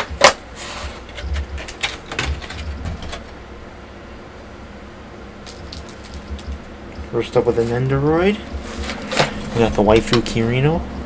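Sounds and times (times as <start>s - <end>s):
plastic parts clicking and knocking: 1.1s - 3.2s.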